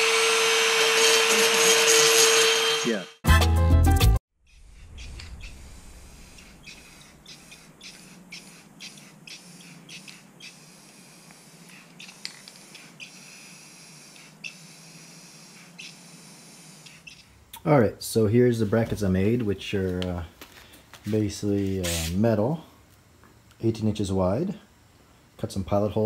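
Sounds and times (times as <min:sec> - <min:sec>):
spray paint can hissing: 0:05.4 - 0:17.3, 0:21.8 - 0:22.2.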